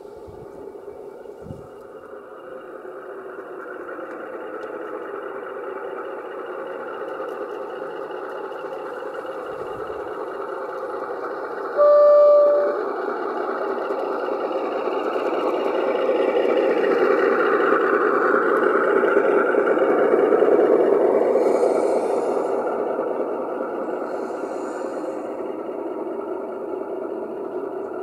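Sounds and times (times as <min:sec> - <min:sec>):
model train running noise: 0:00.0 - 0:28.0
model train horn blast: 0:11.8 - 0:13.0.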